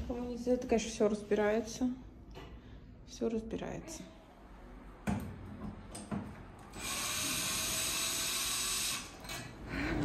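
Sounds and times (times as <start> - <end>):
cordless drill running: 6.7 - 9.2.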